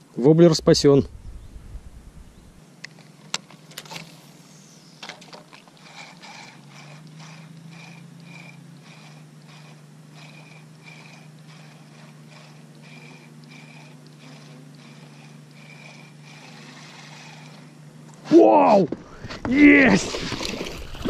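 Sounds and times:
fishing reel winding: 5.0 - 17.7
reel clicks: 5.0 - 18.2.

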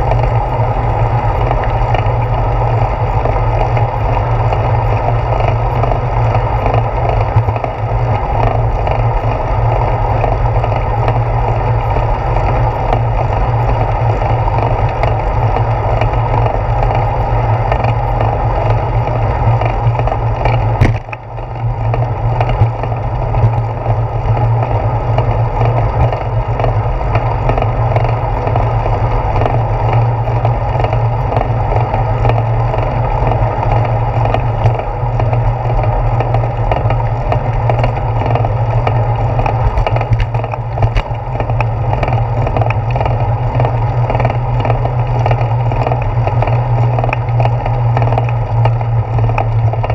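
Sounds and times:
bicycle tyres rolling on asphalt: 0.0 - 49.9
bike rattling: 0.0 - 49.9
sharp knock: 20.8 - 21.1.

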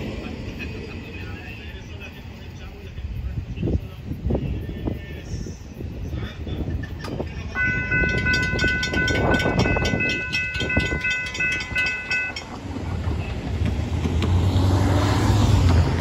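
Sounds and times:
cars driving across tracks: 0.0 - 16.0
railroad crossing bell ringing: 7.4 - 13.5.

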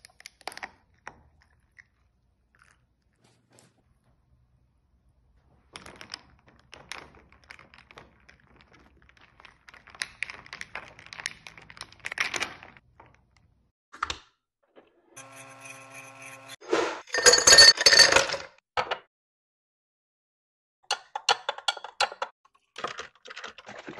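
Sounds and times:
ice cubes rattling in glass: 17.1 - 18.6.

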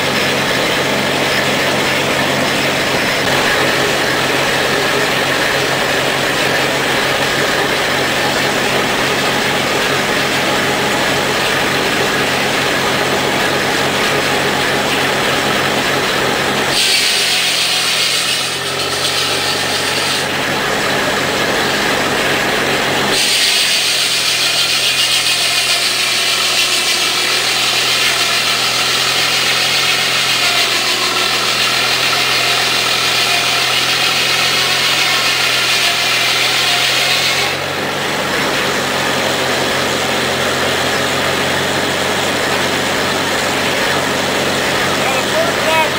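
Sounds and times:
circular saw cutting log: 0.0 - 45.9
mill machinery hum: 0.0 - 45.9.

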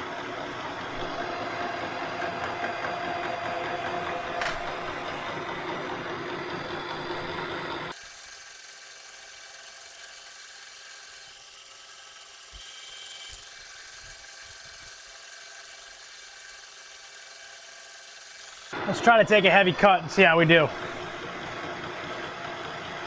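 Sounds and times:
quieter machine hum: 0.0 - 7.9, 18.7 - 23.0
metal lathe running: 0.0 - 23.0.

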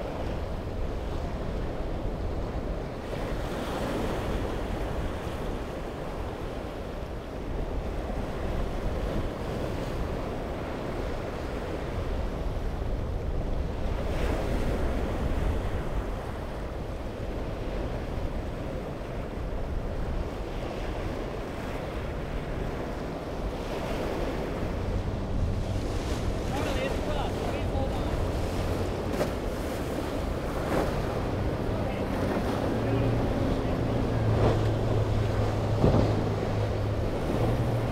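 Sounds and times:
wind buffeting microphone: 0.0 - 37.9
sea water washing against rocks: 22.4 - 37.9.

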